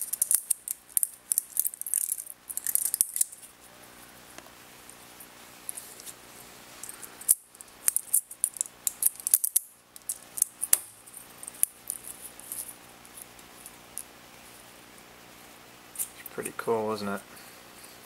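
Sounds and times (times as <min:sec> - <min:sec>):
plastic segments clicking and rattling: 0:00.0 - 0:03.3.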